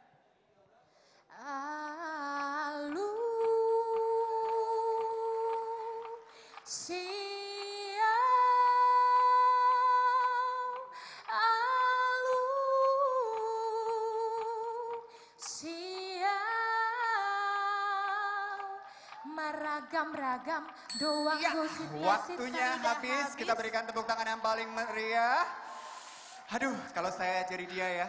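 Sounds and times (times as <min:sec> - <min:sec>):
woman singing unaccompanied: 0:01.3 - 0:23.8.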